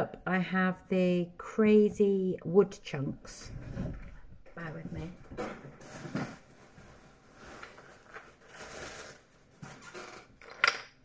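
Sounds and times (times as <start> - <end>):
rustling: 4.9 - 10.3.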